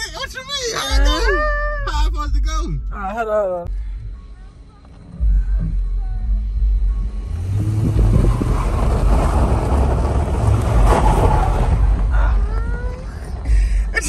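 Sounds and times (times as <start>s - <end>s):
tyre and road noise: 4.0s - 14.0s
car engine revving: 4.9s - 14.0s.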